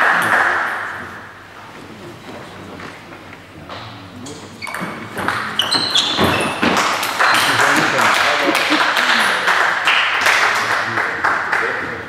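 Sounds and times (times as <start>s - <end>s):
spectators clapping: 0.0s - 1.2s, 6.6s - 12.0s
shoes squeaking on floor: 2.0s - 8.0s.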